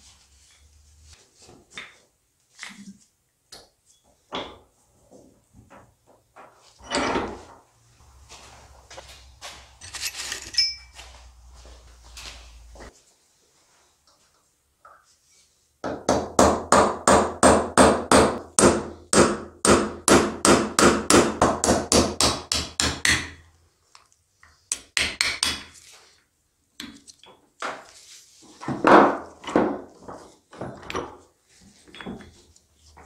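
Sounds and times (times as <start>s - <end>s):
metal clinks and scrapes: 9.7s - 11.3s.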